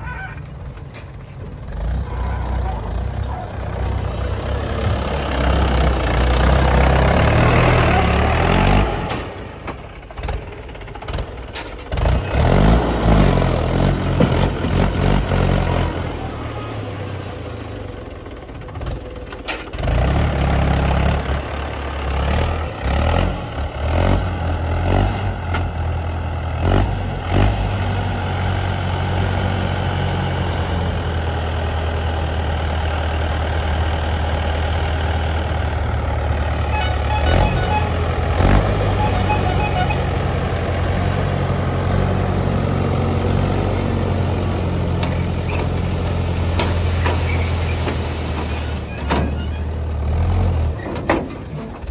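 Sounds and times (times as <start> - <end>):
tractor diesel engine running: 0.0 - 51.9
sharp knocks and clanks: 14.0 - 15.0, 50.8 - 51.9.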